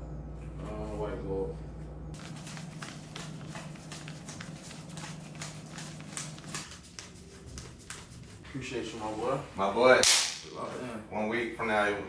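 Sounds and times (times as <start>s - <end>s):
low hum: 0.0s - 11.6s
banknotes flicked by hand: 2.2s - 8.3s.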